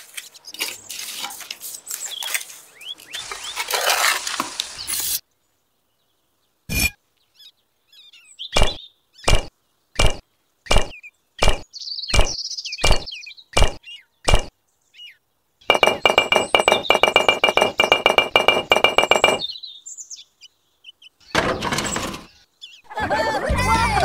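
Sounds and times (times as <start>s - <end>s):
clay bricks knocking: 15.7s - 19.5s.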